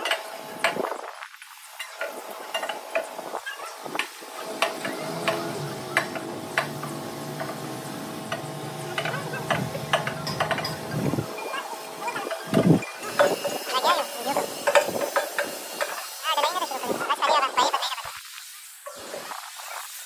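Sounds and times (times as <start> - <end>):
steady background hum: 0.0 - 18.0
metal clinks and knocks: 8.3 - 11.0.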